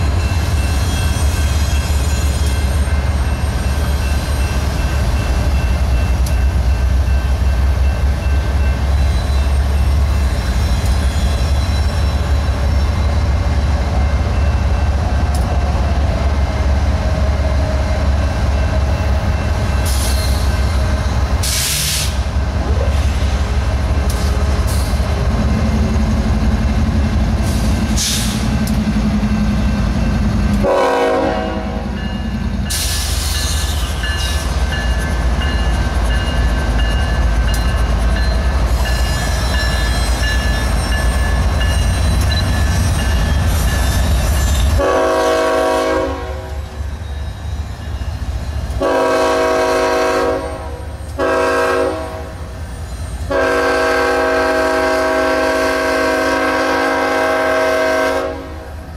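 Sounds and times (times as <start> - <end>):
diesel locomotives rumbling: 0.0 - 58.9
locomotive air horn: 30.6 - 32.0, 44.8 - 46.6, 48.8 - 52.4, 53.3 - 58.7.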